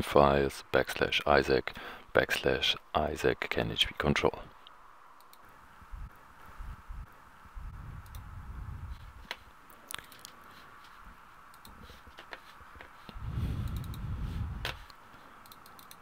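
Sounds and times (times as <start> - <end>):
faint steady hum: 0.0 - 16.0
computer mouse clicking: 5.2 - 5.5, 8.0 - 8.3, 11.5 - 14.0, 14.6 - 16.0.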